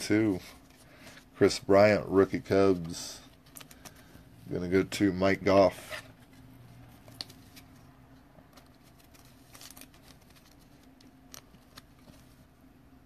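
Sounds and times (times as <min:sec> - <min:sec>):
low room hum: 0:00.0 - 0:13.0
hands handling trading card: 0:02.3 - 0:04.2, 0:05.8 - 0:12.5.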